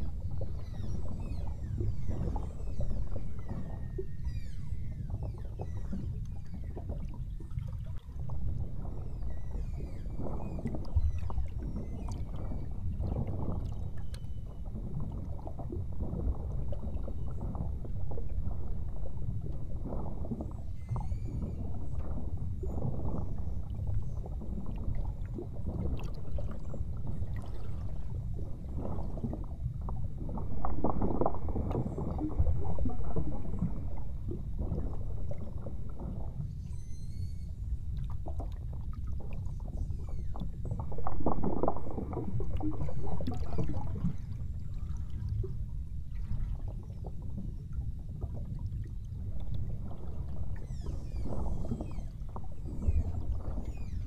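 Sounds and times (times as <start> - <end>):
whale whistles and chirps: 0.0 - 17.8, 20.4 - 25.2, 34.9 - 38.4, 39.2 - 41.0, 42.4 - 45.2, 49.0 - 54.0
underwater rumble and sloshing: 0.0 - 54.0.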